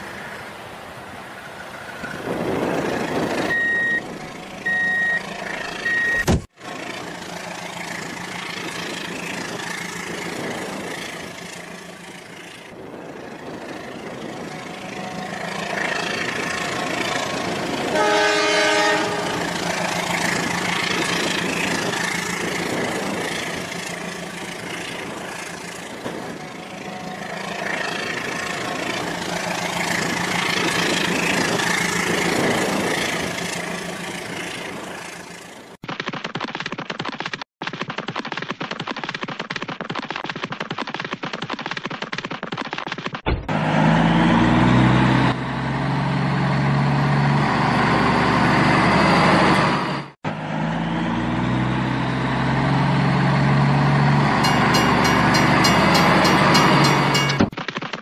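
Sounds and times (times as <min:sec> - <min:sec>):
short electronic beeps: 0:03.5 - 0:05.2, 0:05.8 - 0:06.4
electronic horn toot: 0:17.9 - 0:19.4.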